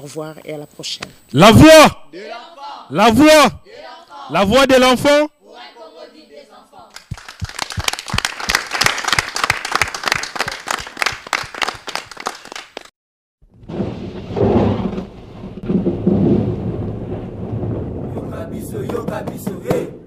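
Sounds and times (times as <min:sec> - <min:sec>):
audience clapping: 0:06.9 - 0:12.9, 0:18.8 - 0:19.8
low rumble: 0:13.7 - 0:19.3.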